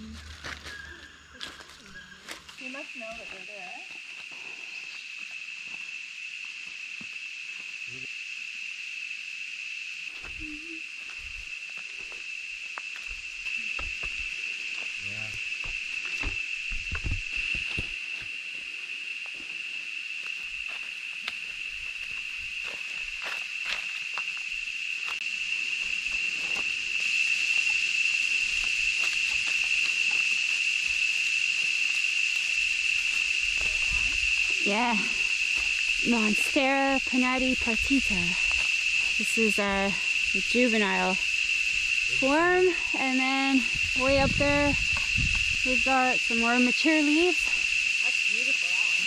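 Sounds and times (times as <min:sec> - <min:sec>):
footsteps on dry leaves: 0:00.0 - 0:02.6
cicadas droning: 0:00.0 - 0:49.0
footfalls on dirt trail: 0:12.9 - 0:18.4.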